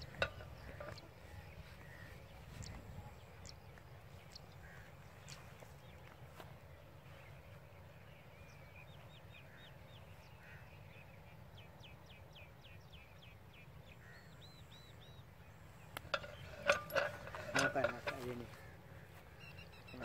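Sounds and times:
faint birdsong whistles: 19.1 - 20.0.

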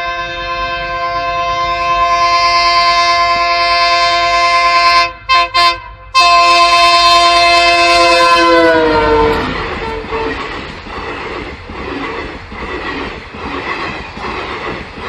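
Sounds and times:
train air horn: 0.0 - 10.6.

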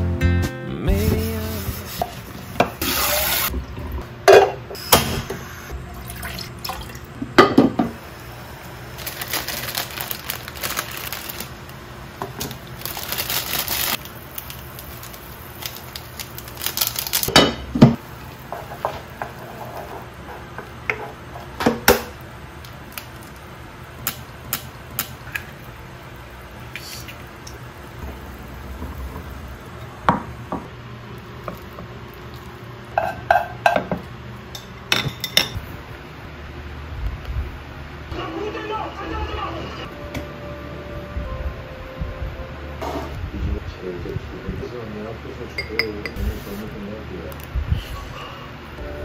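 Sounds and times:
tap running: 26.7 - 30.7.

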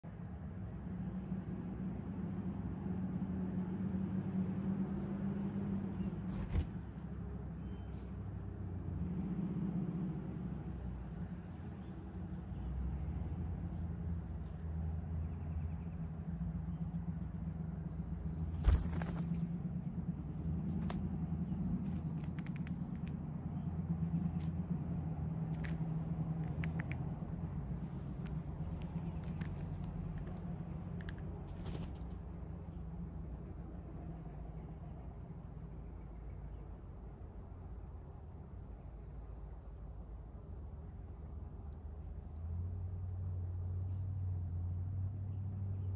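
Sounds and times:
steady low hum: 0.0 - 45.0
light clicks: 21.8 - 23.2.

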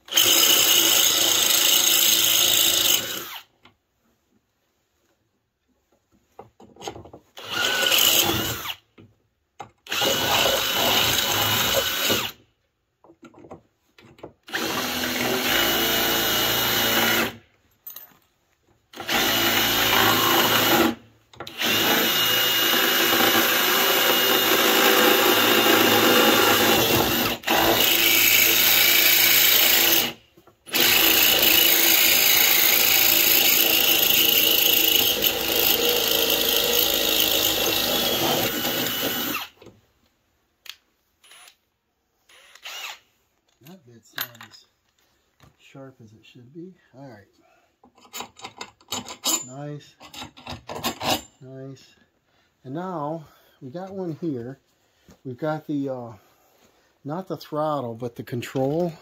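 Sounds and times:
cordless drill boring: 0.0 - 3.5, 7.4 - 8.8, 9.9 - 12.4, 14.5 - 17.4, 19.0 - 39.6, 41.2 - 41.6, 42.3 - 43.0.

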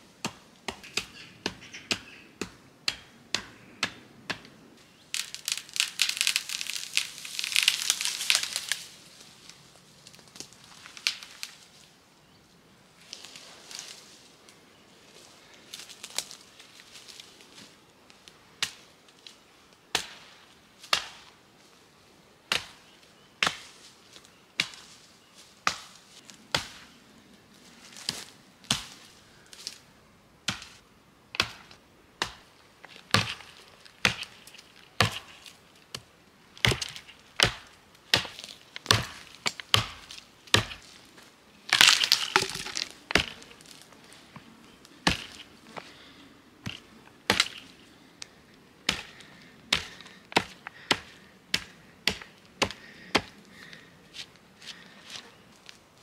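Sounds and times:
hatchet chopping wood: 0.2 - 4.5, 31.4 - 32.4, 33.1 - 34.4, 35.0 - 36.0, 36.6 - 40.9, 41.7 - 43.4, 45.0 - 45.4, 46.6 - 47.6, 48.8 - 53.3
wood splintering cracks: 5.1 - 8.8, 41.7 - 43.5.

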